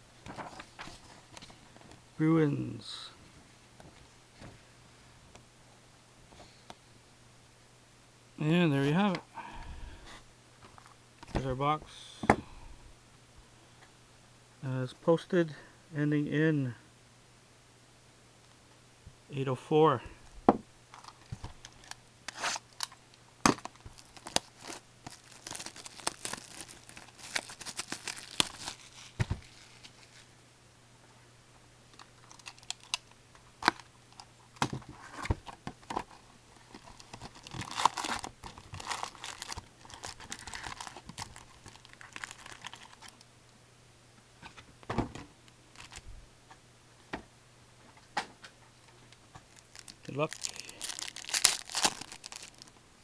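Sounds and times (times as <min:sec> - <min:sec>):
plastic wrapping crinkling and tearing: 0:20.9 - 0:30.3, 0:32.0 - 0:34.3, 0:34.9 - 0:43.2, 0:45.7 - 0:46.0, 0:49.5 - 0:52.8.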